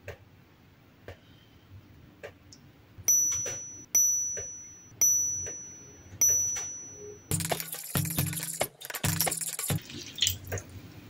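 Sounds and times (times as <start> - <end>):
utensil handling clicks: 7.3 - 9.9.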